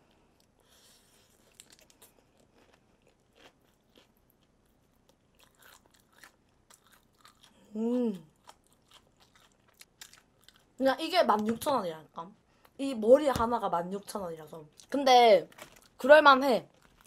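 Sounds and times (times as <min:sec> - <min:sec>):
chewing crispy chicken: 0:01.1 - 0:10.8.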